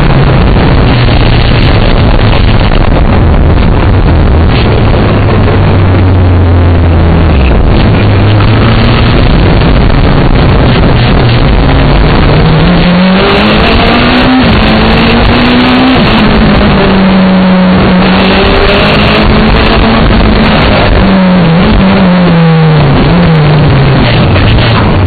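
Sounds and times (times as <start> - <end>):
car engine revving through gears: 0.0 - 25.0
road noise: 0.0 - 25.0.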